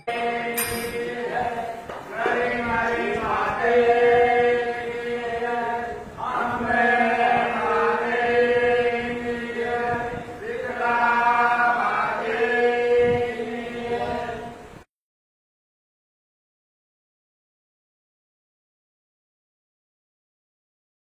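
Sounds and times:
chanting: 0.0 - 14.9.

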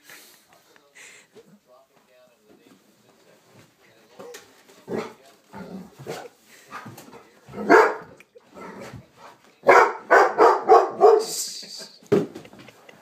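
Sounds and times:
dog barking: 7.6 - 8.2, 9.6 - 11.4.

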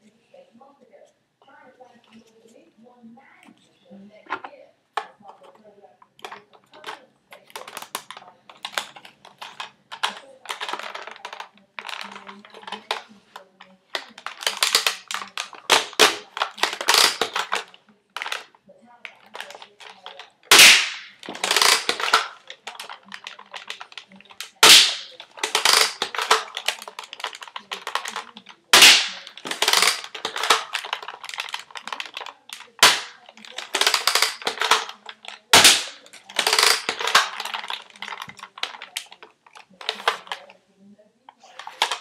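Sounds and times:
plastic clicking and rattling: 3.4 - 42.0
dart blaster shot crack: 20.5 - 22.2, 24.6 - 25.1, 28.8 - 29.2.

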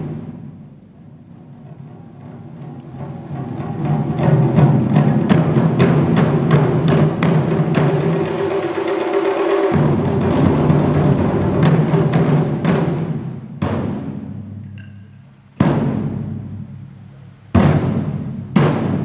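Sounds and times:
fast taiko drumming: 0.0 - 19.0
heavy unison drum strikes: 3.5 - 16.9, 17.5 - 19.0.

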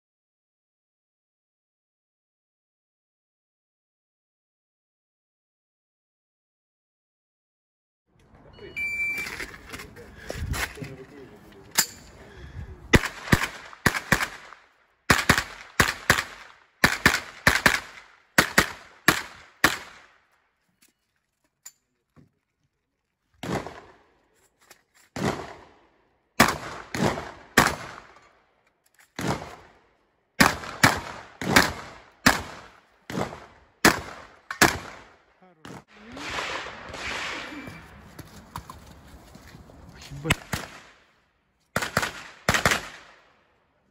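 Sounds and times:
rapid gunfire: 12.9 - 20.1, 30.4 - 37.7, 41.8 - 43.2.

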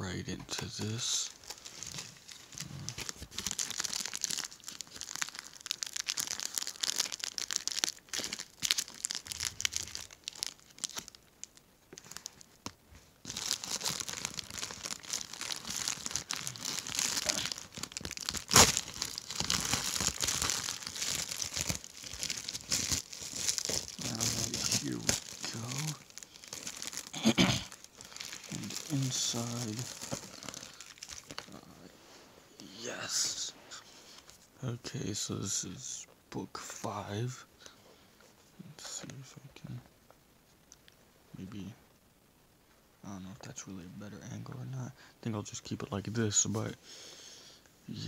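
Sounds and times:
plastic mailer crinkling and tearing: 0.6 - 31.6.

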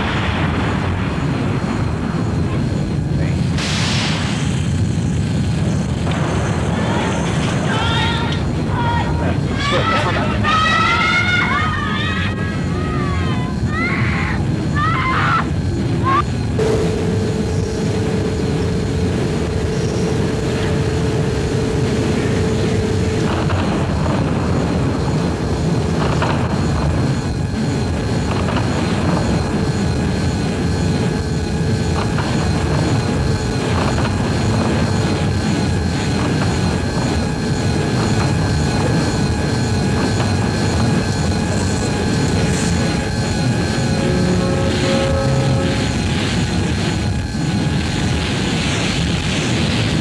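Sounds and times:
low rumbling drone: 11.6 - 50.0.

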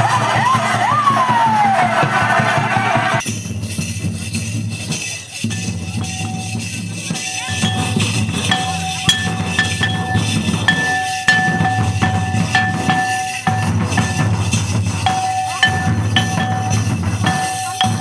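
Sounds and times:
barrel drums beating: 3.7 - 18.0
high ringing note: 7.2 - 18.0.

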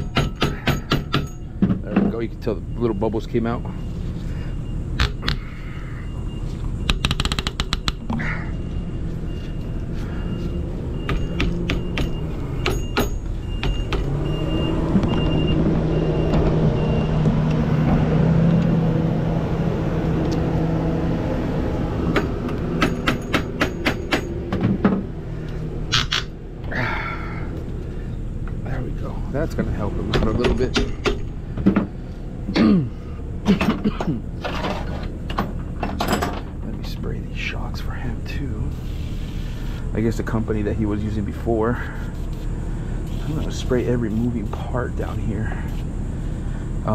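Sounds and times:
hand tool tapping metal frame: 0.0 - 2.1
low engine-like hum: 0.0 - 46.9.

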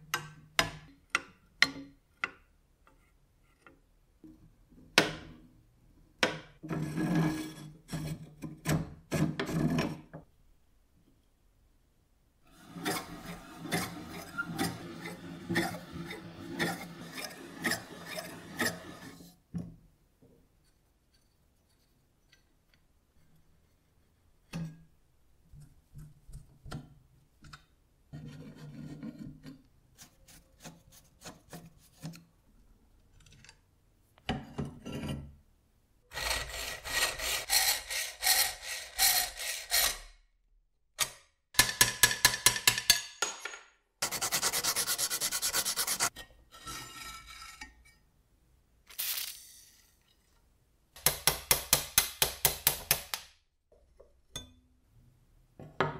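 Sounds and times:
metal-on-metal scraping: 6.6 - 10.1, 12.5 - 19.4, 44.0 - 48.1.

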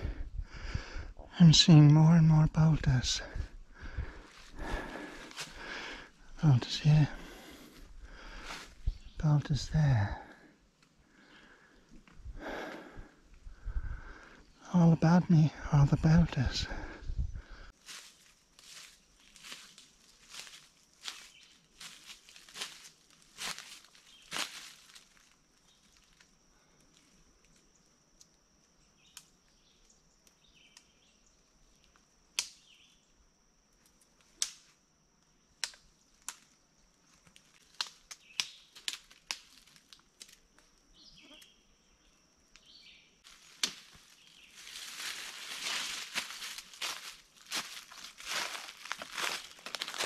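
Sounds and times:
footsteps on dry leaves: 4.0 - 5.8, 17.8 - 25.4, 43.2 - 50.0.

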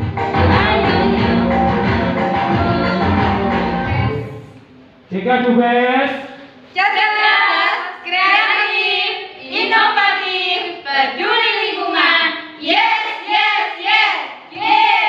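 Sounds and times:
group of voices singing a cheer: 0.0 - 4.3, 6.8 - 15.0.

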